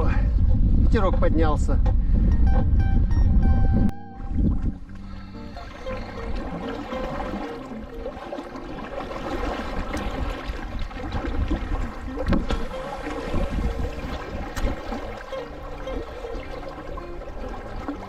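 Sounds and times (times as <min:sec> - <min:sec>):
wind buffeting microphone: 0:00.0 - 0:07.6, 0:09.0 - 0:18.0
water slapping around boat: 0:04.5 - 0:18.0.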